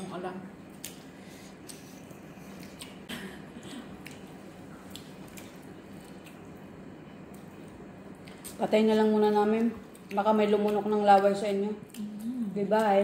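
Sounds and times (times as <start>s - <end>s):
chewing: 0.7s - 8.6s.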